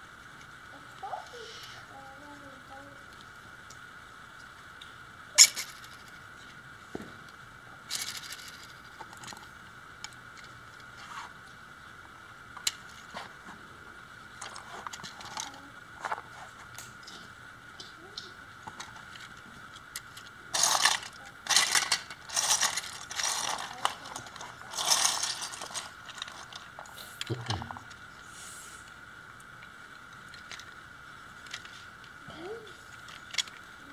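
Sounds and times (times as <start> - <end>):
plastic gears clicking: 5.4 - 6.1, 7.9 - 10.5, 18.8 - 26.8, 30.3 - 30.8, 31.4 - 31.8, 32.9 - 33.7
plastic parts rattling: 5.4 - 6.1, 7.9 - 9.5, 14.4 - 16.3, 18.7 - 28.0, 30.2 - 30.8, 31.4 - 31.8, 32.9 - 33.7.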